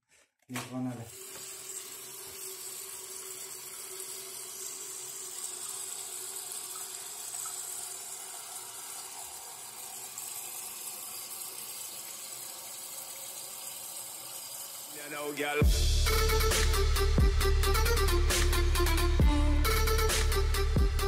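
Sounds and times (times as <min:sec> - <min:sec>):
water hissing into toilet tank: 0:01.0 - 0:15.6.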